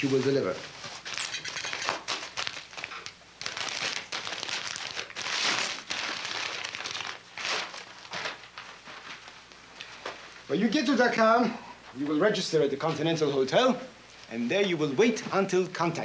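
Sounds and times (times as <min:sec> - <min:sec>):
paper wrapping crinkling: 0:00.0 - 0:10.2.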